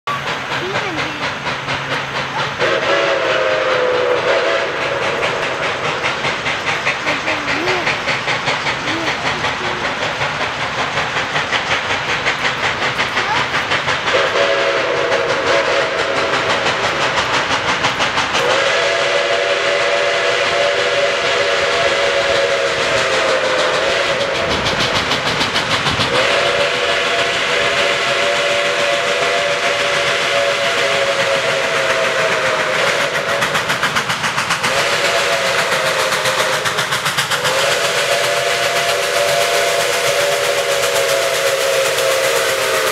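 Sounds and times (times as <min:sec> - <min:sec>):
steam locomotive chuffing: 0:00.0 - 0:42.9
steam whistle long blasts: 0:02.5 - 0:05.7, 0:14.1 - 0:16.9, 0:18.4 - 0:24.7, 0:26.1 - 0:33.7, 0:34.6 - 0:42.9.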